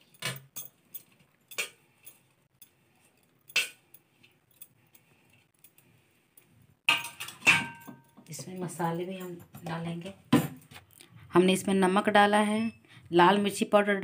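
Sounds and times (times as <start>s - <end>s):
utensils clinking on pressure cooker: 6.9s - 8.5s.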